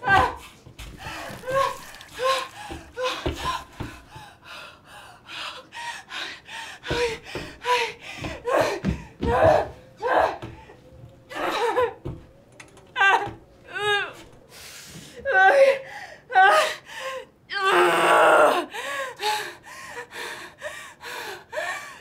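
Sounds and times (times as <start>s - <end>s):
woman panting and gasping: 0.3s - 11.9s, 18.6s - 22.0s.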